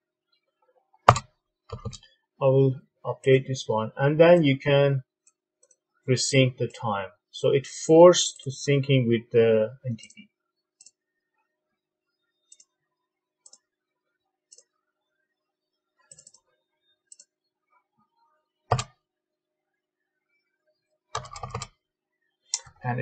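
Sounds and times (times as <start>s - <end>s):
faint mouse clicks: 12.5s - 12.7s, 13.4s - 13.6s, 16.1s - 16.5s.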